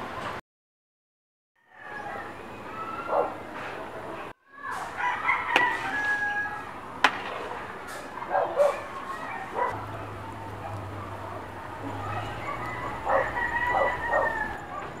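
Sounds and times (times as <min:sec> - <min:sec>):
rooster crowing: 0:04.9 - 0:06.7, 0:12.4 - 0:14.8.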